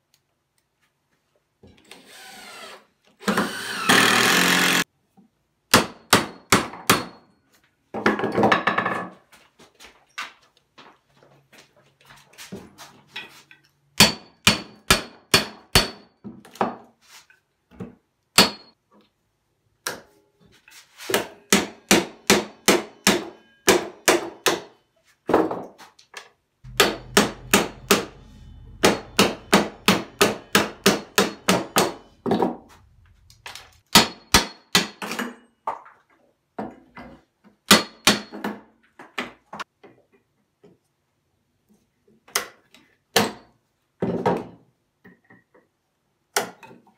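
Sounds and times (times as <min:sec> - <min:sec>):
hammer striking metal: 0:05.7 - 0:07.3, 0:14.0 - 0:16.1, 0:18.4 - 0:18.8, 0:21.1 - 0:24.7, 0:26.7 - 0:35.0.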